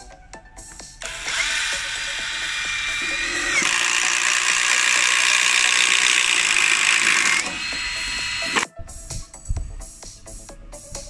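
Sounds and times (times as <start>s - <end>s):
cordless drill boring into wood: 1.0s - 8.7s.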